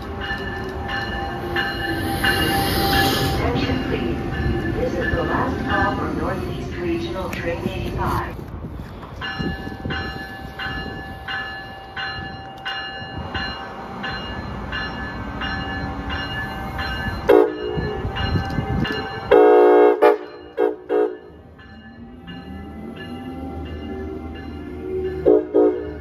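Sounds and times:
locomotive bell ringing: 0.0s - 7.6s, 9.2s - 26.0s
train rumble: 0.0s - 26.0s
train horn blasts: 17.2s - 21.3s, 25.2s - 26.0s.

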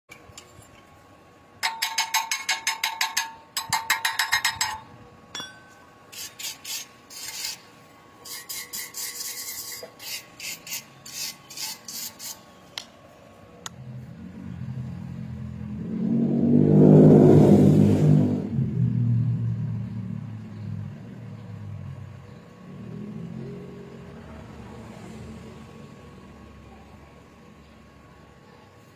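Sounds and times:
rapid rasping scraping strokes: 6.1s - 12.5s
engine rumble: 12.7s - 28.6s.

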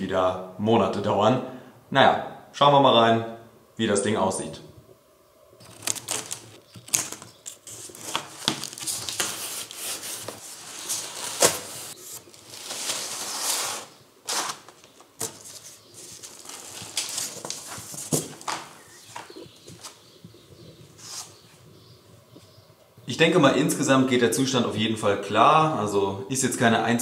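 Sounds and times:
cardboard flaps rustling and scraping: 5.6s - 20.0s.

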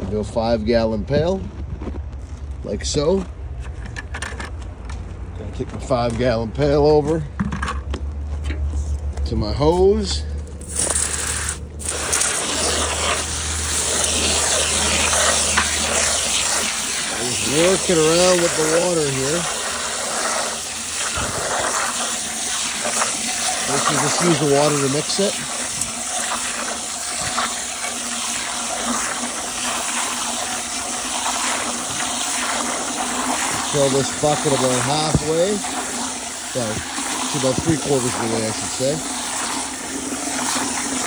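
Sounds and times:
hose spraying water into pail: 10.6s - 41.0s
slurry splashing and churning: 10.7s - 41.0s.

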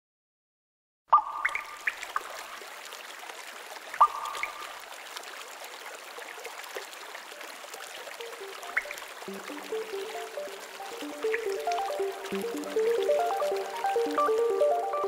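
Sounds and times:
water drops plinking: 1.1s - 2.5s, 4.0s - 4.8s, 8.2s - 15.0s
trickle of running water: 1.2s - 15.0s.

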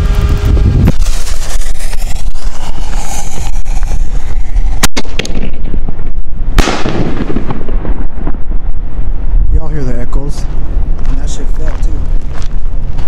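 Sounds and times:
fuse sputtering and hissing: 0.0s - 5.4s
wind buffeting microphone: 0.0s - 13.0s
firework burst with rumble: 0.1s - 9.4s
firework shell launch crack: 0.8s - 8.2s.

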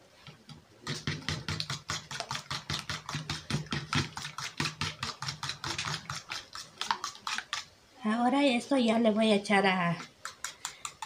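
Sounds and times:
fork beating eggs in plastic bowl: 0.3s - 7.7s, 9.9s - 11.0s.

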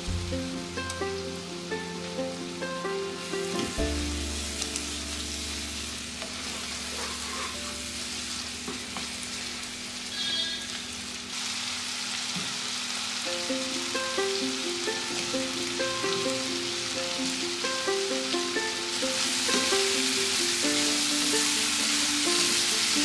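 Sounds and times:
background music: 0.0s - 6.2s, 13.3s - 23.0s
food sizzling in oil: 0.0s - 23.0s
spatula scraping pan: 6.2s - 7.9s.

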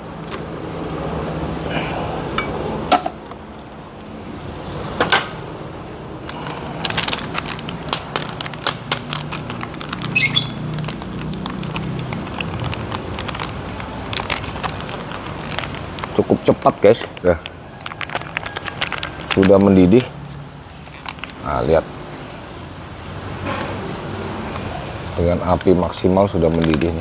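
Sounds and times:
packaging rustle: 6.3s - 20.1s, 20.8s - 21.4s, 25.5s - 27.0s.

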